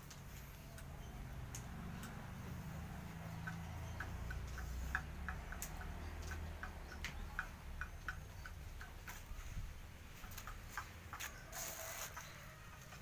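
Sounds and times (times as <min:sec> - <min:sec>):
light ticks: 0:00.0 - 0:02.2, 0:03.0 - 0:09.3.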